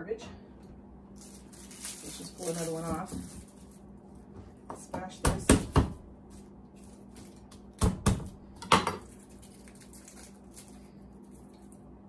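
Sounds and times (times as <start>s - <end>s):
garlic skins crackling: 1.1s - 4.0s, 9.0s - 11.9s.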